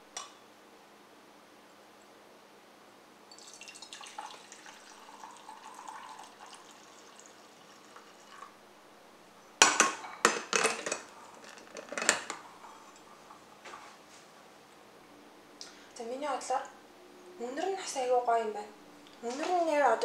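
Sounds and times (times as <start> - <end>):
coffee pouring into glass mug: 3.3 - 8.5.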